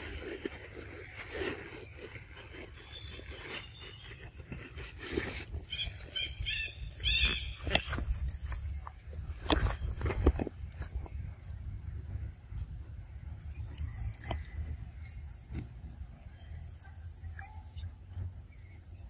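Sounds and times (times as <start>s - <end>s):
sharp crunching bites: 13.6s - 15.8s.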